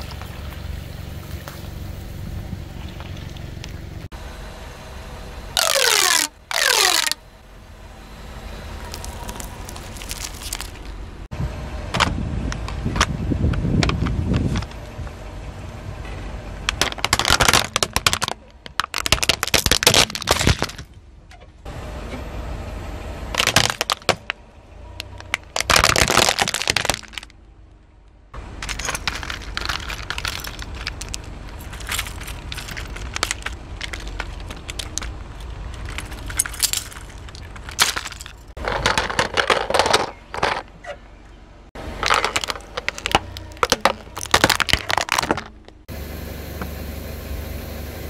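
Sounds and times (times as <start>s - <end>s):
plastic toy cracking under tyre: 5.6s - 7.2s, 8.9s - 10.9s, 16.7s - 20.9s, 23.4s - 24.4s, 25.0s - 27.4s, 28.7s - 40.6s, 42.0s - 45.8s.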